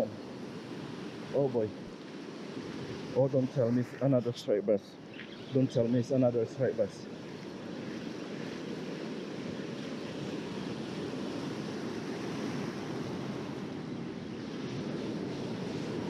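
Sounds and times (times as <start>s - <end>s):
ocean surf breaking: 0.0s - 16.0s
wind on microphone: 5.2s - 16.0s.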